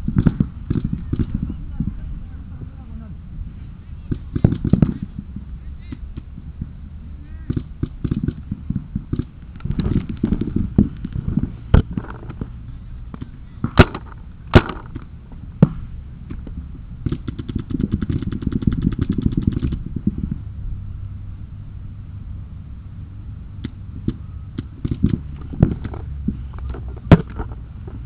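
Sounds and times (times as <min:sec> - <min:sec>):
paintball markers firing: 0:00.0 - 0:01.5, 0:04.1 - 0:05.2, 0:05.8 - 0:06.3, 0:07.4 - 0:12.5, 0:13.1 - 0:19.8, 0:23.6 - 0:26.0
camera rubbing against clothing: 0:04.1 - 0:06.4, 0:07.5 - 0:13.3, 0:17.1 - 0:20.4.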